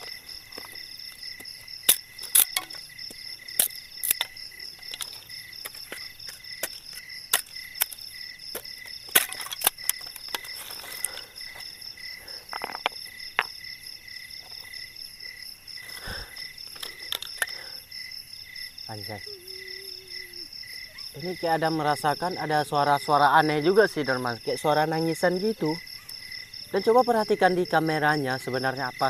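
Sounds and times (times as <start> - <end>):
dry twigs snapping: 0.0 - 11.3
crickets chirping: 0.0 - 29.0.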